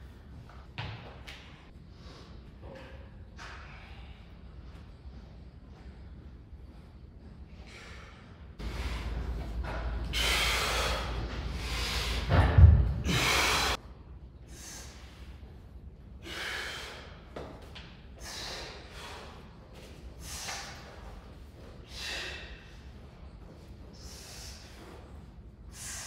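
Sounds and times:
person breathing hard: 7.6s - 13.8s, 14.5s - 15.5s, 16.2s - 17.3s, 18.2s - 21.0s, 21.8s - 23.0s.

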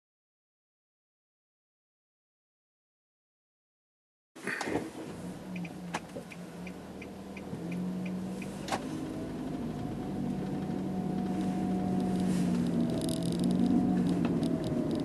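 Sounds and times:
car engine accelerating: 4.5s - 15.0s
light ticking: 5.5s - 8.8s.

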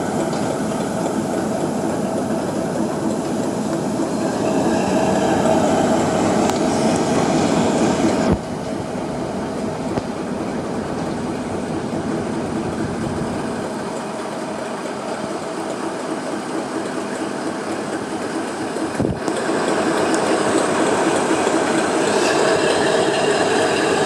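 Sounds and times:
diesel locomotive engine running: 0.0s - 24.0s.

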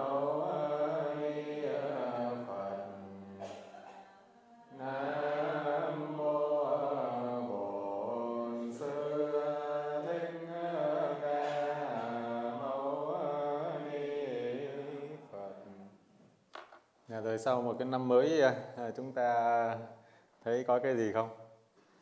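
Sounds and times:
voices chanting held notes: 0.0s - 16.0s.

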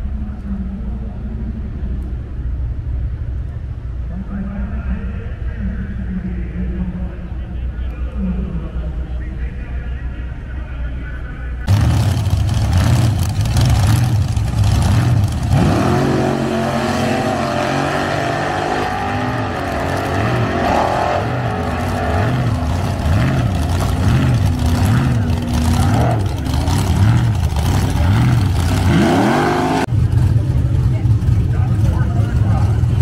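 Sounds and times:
race car engine revving: 11.6s - 33.0s.

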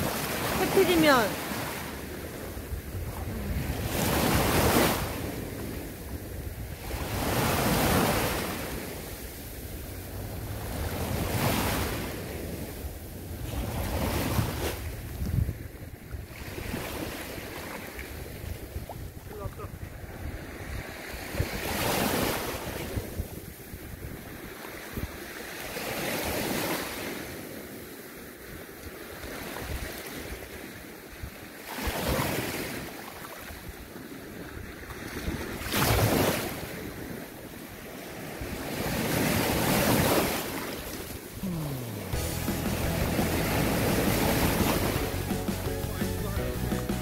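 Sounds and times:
small sea waves washing in: 0.0s - 45.7s
wind buffeting microphone: 1.9s - 25.2s.

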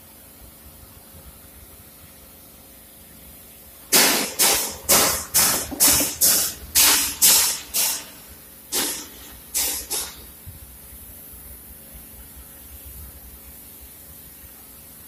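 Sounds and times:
hand pump air hissing: 3.9s - 10.3s.

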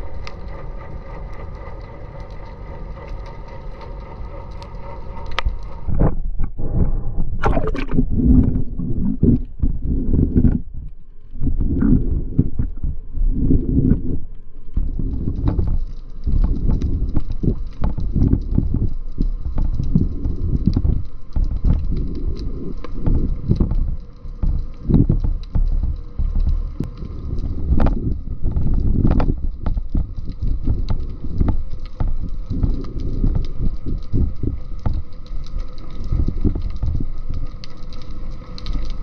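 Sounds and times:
faint clicking crackle: 0.0s - 39.0s
water sloshing around camera: 5.8s - 23.8s.

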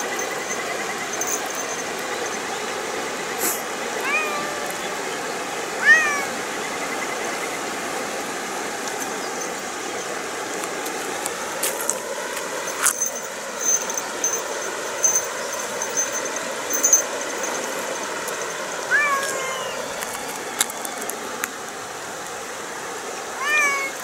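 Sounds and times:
faint high-pitched chirping: 0.0s - 2.8s
rushing background noise: 0.0s - 24.0s.

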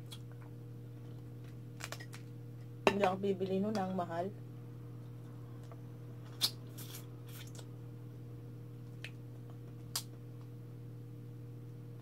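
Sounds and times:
steady low hum: 0.0s - 12.0s
sucking and crunching: 5.2s - 7.7s.

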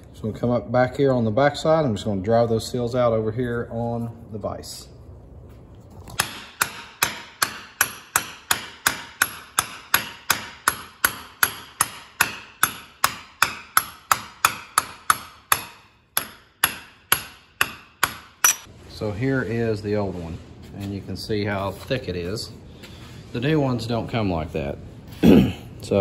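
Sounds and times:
hammer striking metal: 6.2s - 18.7s.

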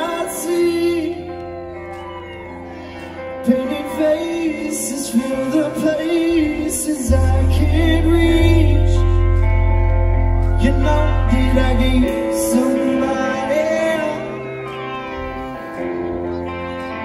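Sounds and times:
live band playing: 0.0s - 17.0s
heavy bass: 6.5s - 14.4s.

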